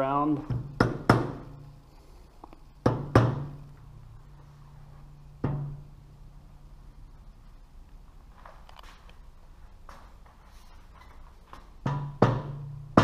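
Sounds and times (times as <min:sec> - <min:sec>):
rubber mallet knocking on metal: 0:00.5 - 0:01.5, 0:02.8 - 0:03.6, 0:05.4 - 0:05.8, 0:11.8 - 0:13.0.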